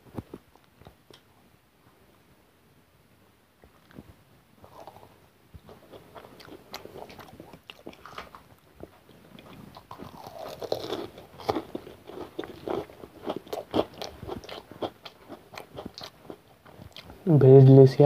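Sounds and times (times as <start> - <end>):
chewing crunchy fried food: 4.6 - 17.3.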